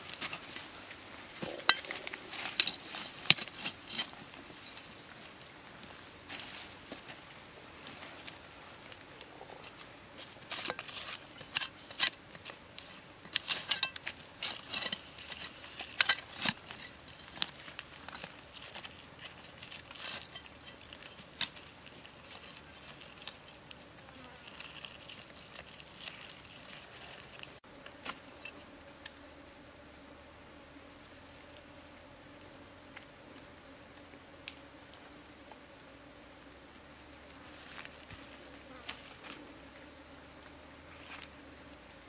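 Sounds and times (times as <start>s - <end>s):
knife scraping through soil and wood: 0.0s - 5.0s, 10.2s - 28.6s.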